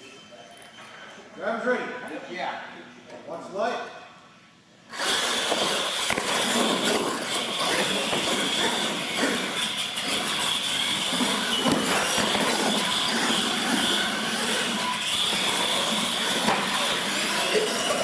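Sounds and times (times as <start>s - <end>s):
high whine of motors and gears: 4.9s - 18.0s
tires grinding on concrete: 4.9s - 18.0s.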